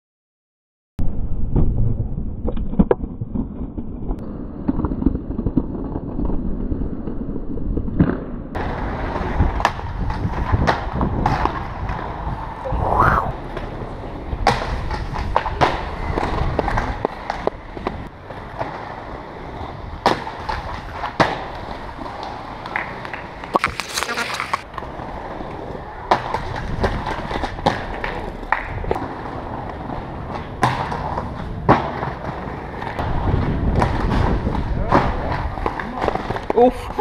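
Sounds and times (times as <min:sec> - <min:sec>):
inline skates rolling on pavement: 0:04.6 - 0:12.7, 0:13.3 - 0:37.0
skate landing clacks: 0:08.0 - 0:12.5, 0:13.4 - 0:19.2, 0:20.0 - 0:24.9, 0:26.1 - 0:37.0
skate grinding on ledge: 0:08.6 - 0:12.6, 0:13.3 - 0:37.0.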